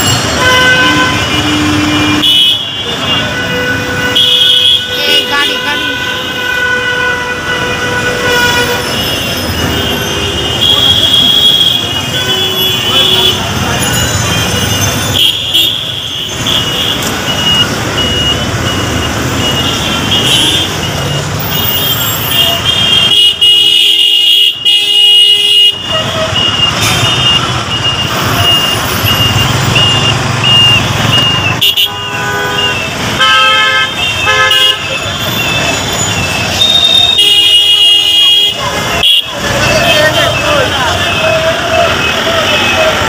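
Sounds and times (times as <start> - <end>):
traffic engines running: 0.0 - 43.0
vehicle horns honking: 0.0 - 43.0
high-pitched beeping: 26.4 - 31.6.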